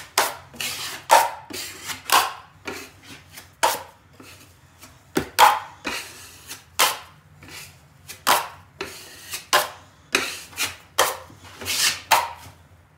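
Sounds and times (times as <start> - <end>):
drywall knife scraping compound: 0.0 - 12.6.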